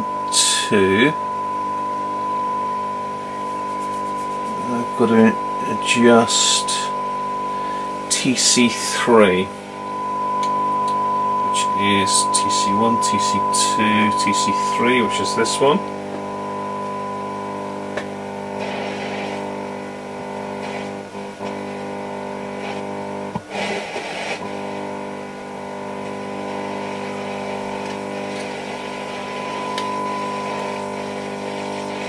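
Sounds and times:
rushing radio noise: 0:00.0 - 0:19.8
buzzy hum: 0:00.0 - 0:32.0
radio test tone: 0:00.0 - 0:32.0.

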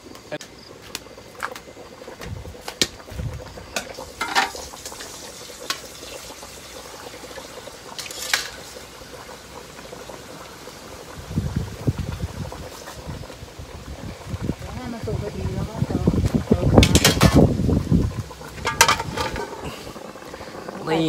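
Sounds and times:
soup bubbling: 0:00.0 - 0:21.0
sharp pops and clicks: 0:00.1 - 0:03.1.

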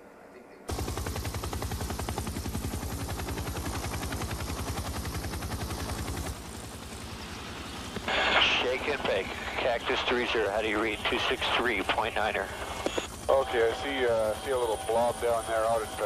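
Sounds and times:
helicopter rotor beating: 0:00.7 - 0:16.0.

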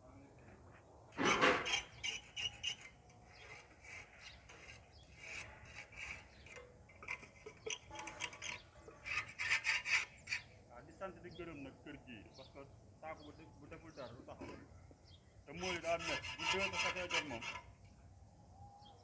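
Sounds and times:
tool scraping gritty surface: 0:01.2 - 0:10.5, 0:15.5 - 0:17.7.

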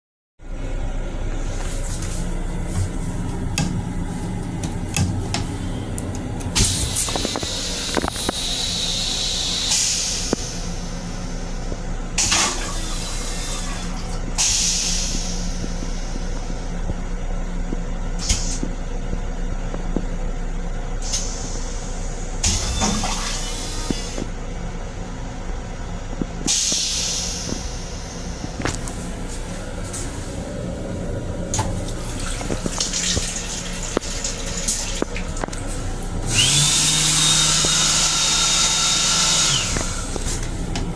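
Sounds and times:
railcar low hum: 0:00.4 - 0:37.7, 0:39.5 - 0:40.9
toilet flushing: 0:12.2 - 0:16.2, 0:21.0 - 0:24.2, 0:31.5 - 0:40.4.

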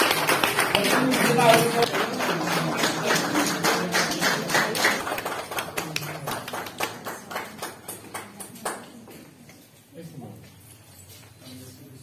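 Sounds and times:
small audience clapping: 0:00.0 - 0:09.5.

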